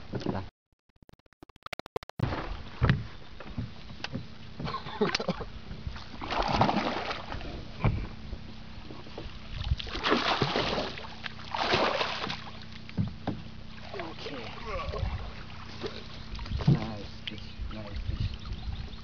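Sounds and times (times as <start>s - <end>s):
fish thrashing and splashing: 6.1s - 7.4s, 9.8s - 12.8s.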